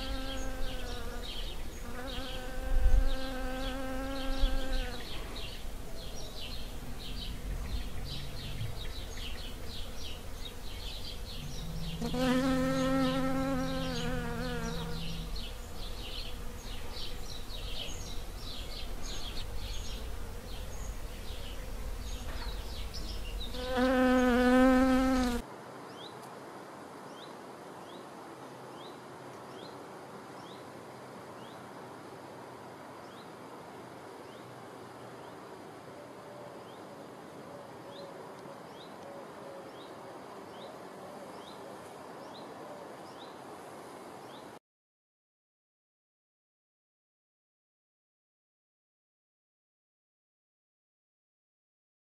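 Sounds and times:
honeybee buzzing: 0:00.0 - 0:05.7, 0:06.5 - 0:25.4
birds chirping: 0:00.0 - 0:25.4
outdoor ambience: 0:00.0 - 0:44.6.

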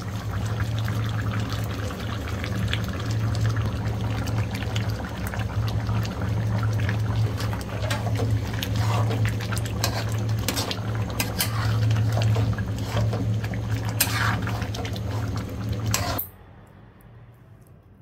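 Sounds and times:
curry bubbling and popping: 0:00.0 - 0:16.2
metal spatula stirring: 0:07.8 - 0:13.2, 0:13.8 - 0:16.3.

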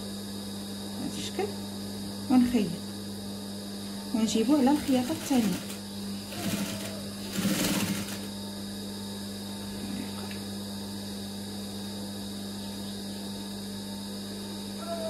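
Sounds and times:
electrical hum: 0:00.0 - 0:15.0
sewing machine stitching: 0:04.6 - 0:08.3.

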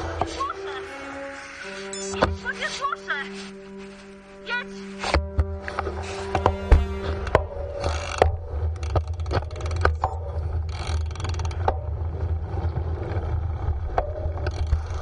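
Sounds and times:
wind and road rumble: 0:05.2 - 0:15.0
bike rattles and clicks: 0:07.3 - 0:15.0.

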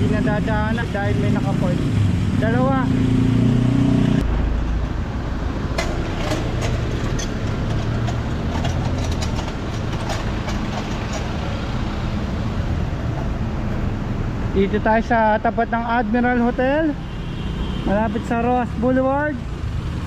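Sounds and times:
street traffic rumble: 0:00.0 - 0:20.0
metallic clicks and clanks: 0:05.6 - 0:11.7.

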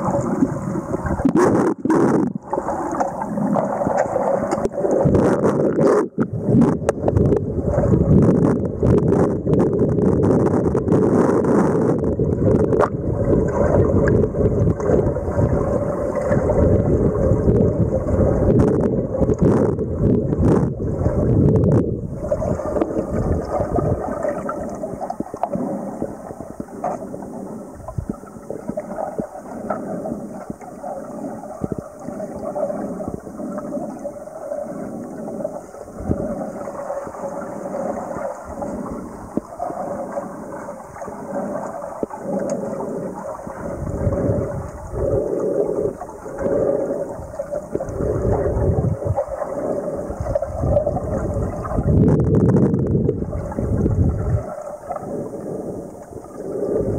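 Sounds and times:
muffled underwater rumble: 0:00.0 - 0:56.9
underwater wash: 0:00.0 - 0:56.9
small clicks and crackles: 0:03.9 - 0:07.2.

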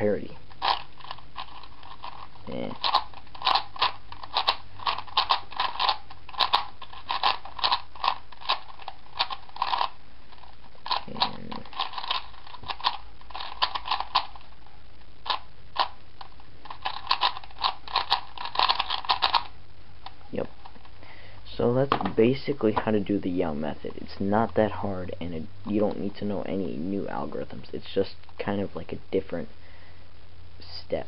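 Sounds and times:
plastic puzzle cube clicking: 0:00.5 - 0:14.4, 0:15.2 - 0:20.8.

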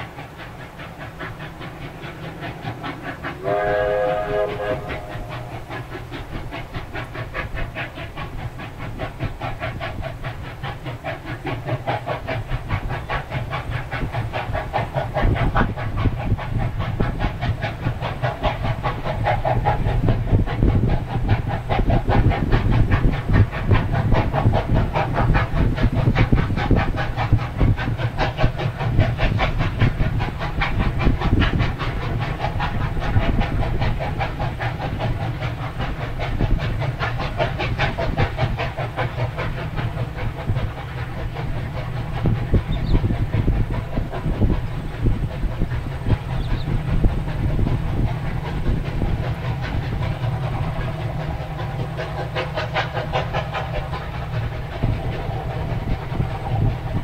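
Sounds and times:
train wheels clicking over rail joints: 0:00.0 - 0:57.0
wind rumble on microphone: 0:03.4 - 0:57.0.

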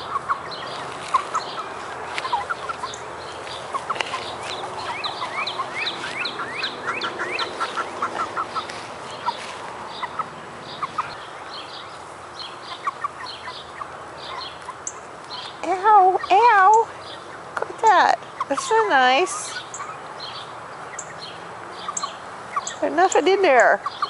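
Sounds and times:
hen clucking and chirping: 0:00.0 - 0:24.0.

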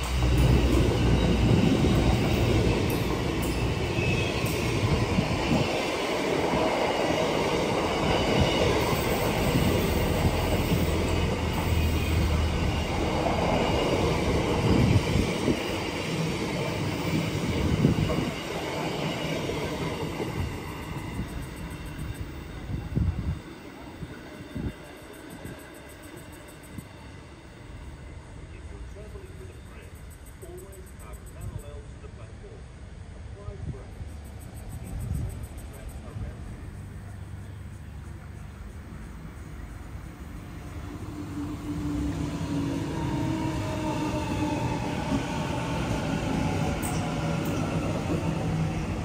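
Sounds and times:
high wheel squeal: 0:00.0 - 0:06.0, 0:07.7 - 0:16.0
train wheels rumbling on rails: 0:00.0 - 0:32.3, 0:33.4 - 0:49.0.

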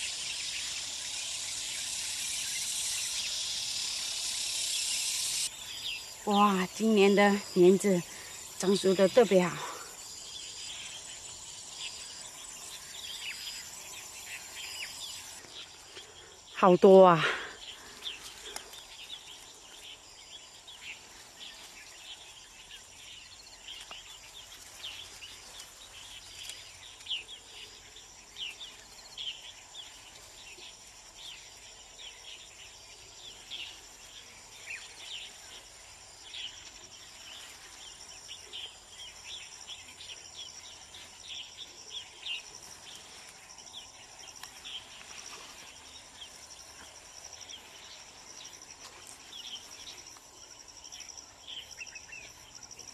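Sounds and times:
short quick insect chirps: 0:00.0 - 0:06.3
insects trilling: 0:00.0 - 0:52.9.

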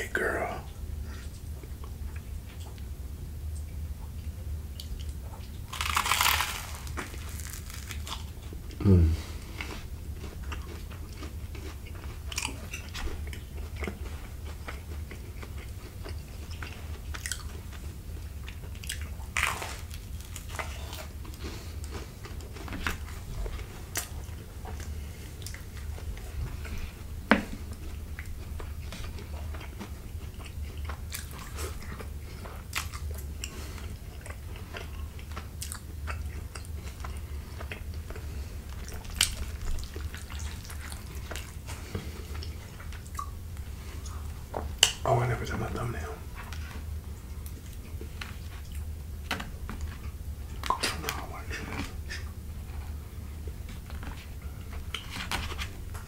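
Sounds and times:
steady low hum: 0:00.0 - 0:56.0
chewing with small crunches: 0:01.1 - 0:56.0
crunchy bite of toasted bread: 0:05.7 - 0:09.0.

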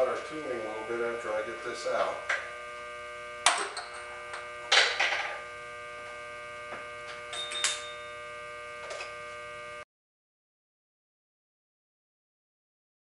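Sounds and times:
steady machine hum: 0:00.0 - 0:09.9.

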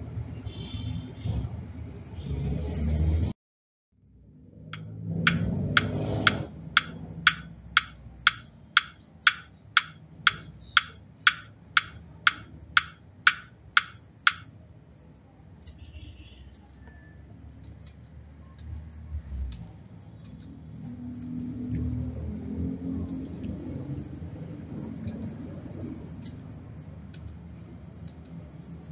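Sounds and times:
clock-like ticking: 0:04.8 - 0:14.5.

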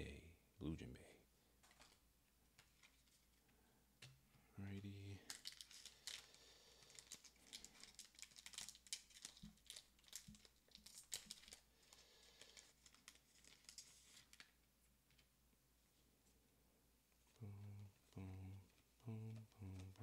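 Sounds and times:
foil wrapper crinkling: 0:05.2 - 0:15.2.

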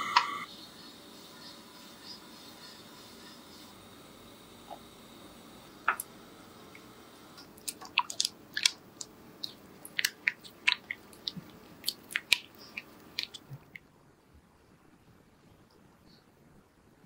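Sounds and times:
spatula stirring thick paste: 0:09.4 - 0:13.8.

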